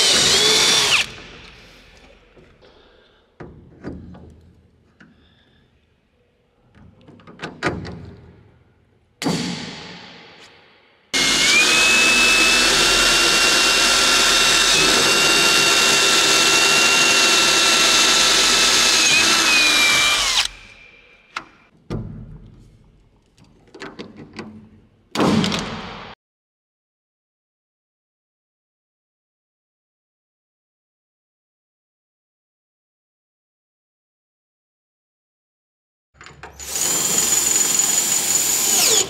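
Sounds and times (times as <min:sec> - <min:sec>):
cordless drill whining: 0:00.0 - 0:01.2, 0:11.2 - 0:21.0, 0:36.6 - 0:39.0
tool handling clicks and knocks: 0:21.4 - 0:24.8.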